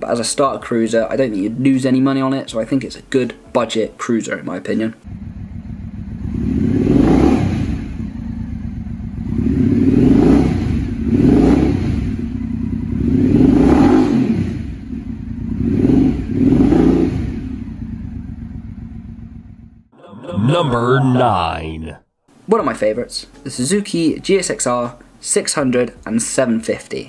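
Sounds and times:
motorcycle engine idling and revving: 5.0s - 19.9s.

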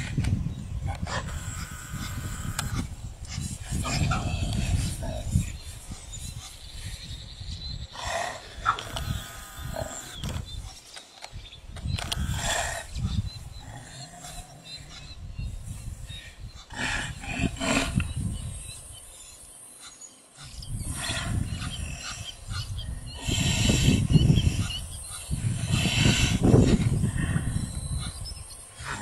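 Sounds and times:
wildebeest struggling: 0.8s - 6.9s, 8.0s - 10.6s, 12.0s - 18.6s, 20.4s - 29.0s
lioness growling: 3.6s - 5.7s, 7.9s - 10.6s, 12.0s - 15.2s, 16.7s - 18.4s, 20.8s - 28.2s, 28.8s - 29.0s.

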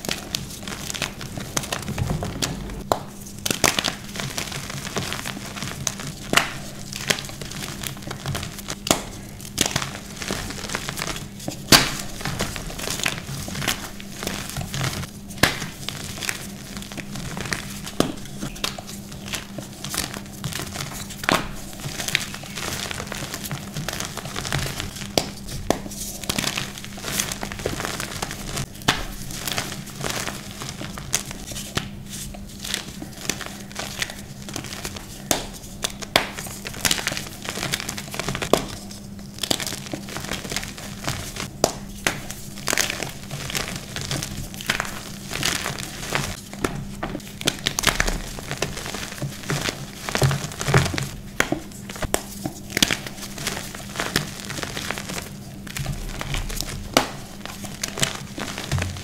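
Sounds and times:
faint low hum: 0.0s - 4.4s
chalk crunching and crackling: 0.0s - 59.0s.

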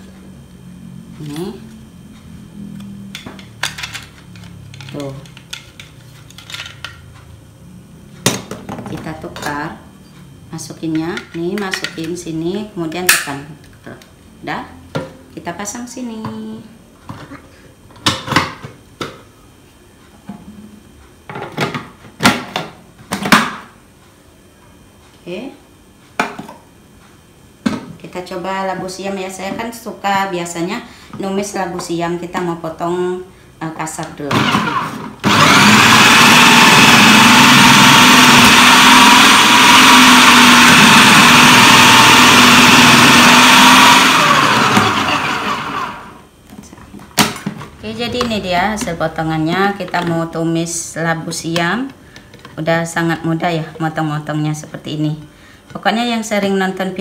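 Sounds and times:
food processor motor running: 34.3s - 46.2s.

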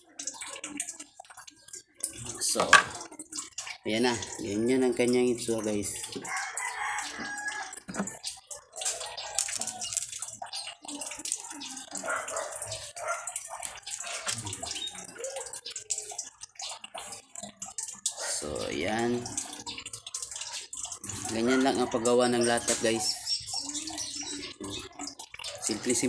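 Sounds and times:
fishing line spool crackling and clicking: 6.1s - 18.2s.

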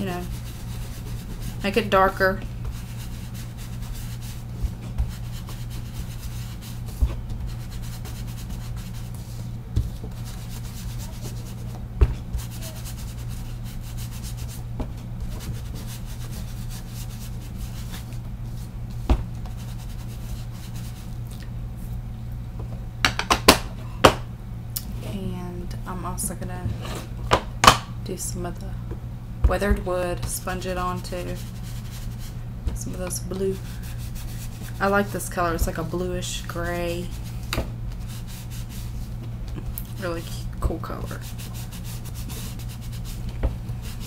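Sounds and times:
sponge rubbing on paper: 0.0s - 21.2s, 30.5s - 39.2s, 39.9s - 44.0s.

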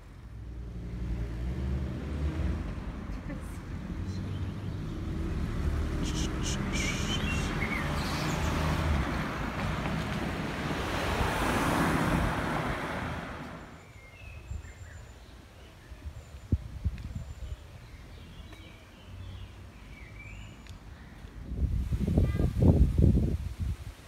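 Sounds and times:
car passing: 0.0s - 13.8s.

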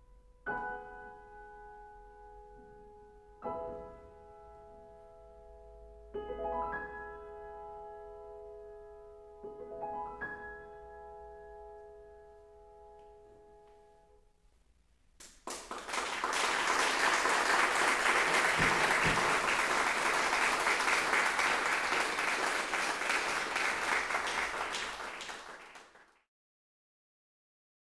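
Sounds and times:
audience applauding: 15.2s - 26.2s.

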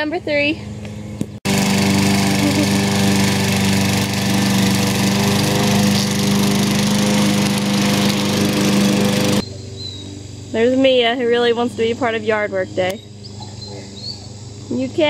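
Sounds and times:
lawn mower engine running: 0.7s - 9.8s.

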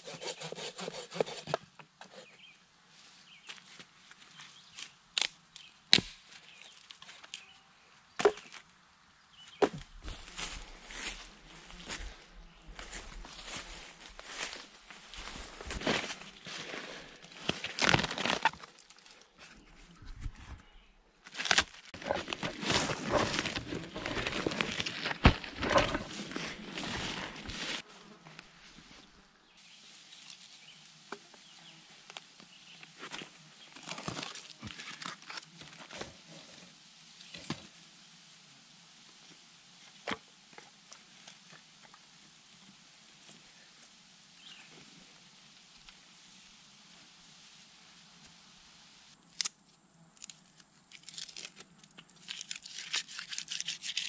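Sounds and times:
steady outdoor hiss: 0.0s - 20.0s, 20.6s - 54.0s
footsteps through leafy undergrowth: 10.0s - 29.2s
sticks and log clicking: 50.2s - 54.0s.

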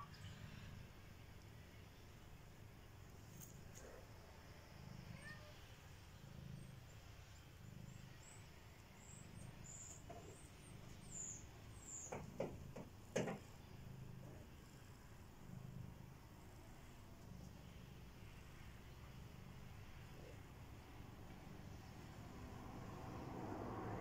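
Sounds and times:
kittens purring: 0.0s - 24.0s
short knocks: 12.1s - 13.5s.

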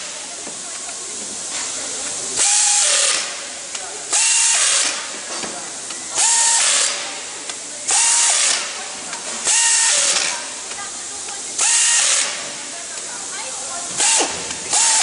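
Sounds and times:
pneumatic wrench whining: 2.3s - 5.3s, 6.1s - 7.2s, 7.9s - 12.7s, 13.8s - 15.0s.

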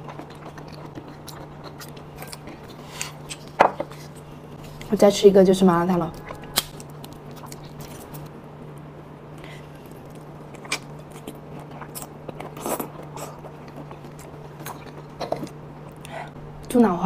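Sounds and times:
biting and chewing: 0.0s - 4.9s, 9.8s - 16.1s
steady low hum: 0.0s - 17.0s.

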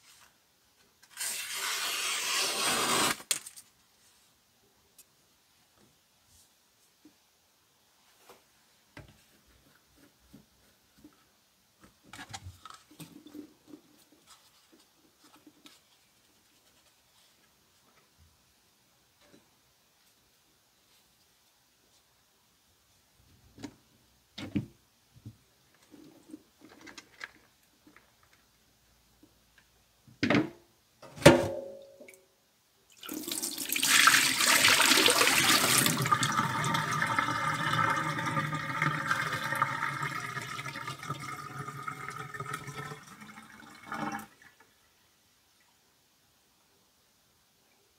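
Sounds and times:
water running from a tap: 33.0s - 43.4s.

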